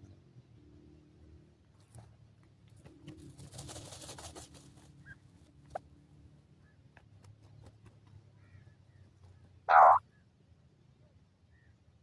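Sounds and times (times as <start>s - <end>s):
birds dust-bathing in soil: 1.7s - 6.0s, 6.6s - 10.1s
faint bird chirps: 8.4s - 12.0s.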